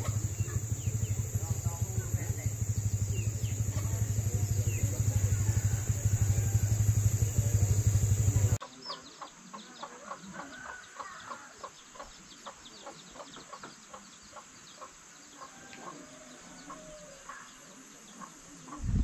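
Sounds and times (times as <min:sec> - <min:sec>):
small engine running: 0:00.0 - 0:08.6
chickens clucking: 0:00.0 - 0:19.0.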